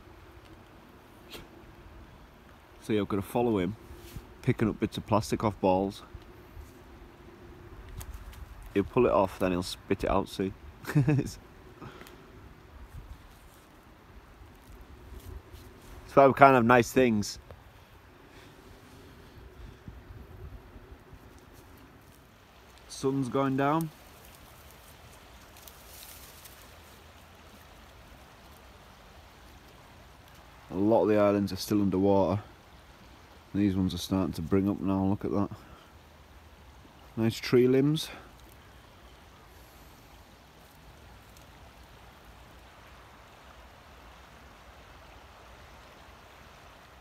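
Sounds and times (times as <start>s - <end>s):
outdoor background hiss: 0.0s - 47.0s
rushing floodwater: 8.3s - 47.0s
soft high rustles: 11.8s - 16.2s, 23.8s - 28.7s.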